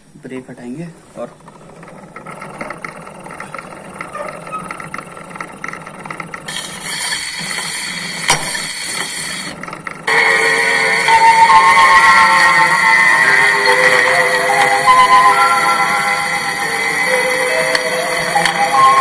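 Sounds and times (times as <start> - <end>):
record surface hiss: 0.0 - 19.0
gramophone turntable mechanical rattle: 1.2 - 19.0
recorded music through gramophone: 6.5 - 19.0.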